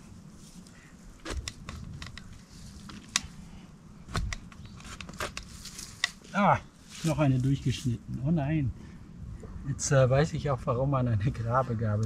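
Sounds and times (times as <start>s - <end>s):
spade crunching into soil: 4.1s - 7.3s.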